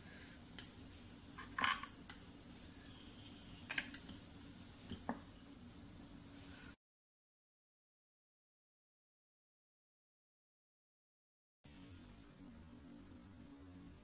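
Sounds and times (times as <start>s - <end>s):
low steady hum: 0.0s - 6.8s, 11.7s - 14.0s.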